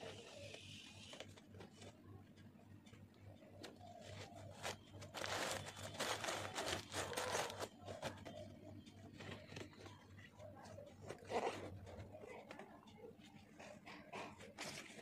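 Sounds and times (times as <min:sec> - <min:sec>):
packing paper crinkling: 0:03.6 - 0:08.4.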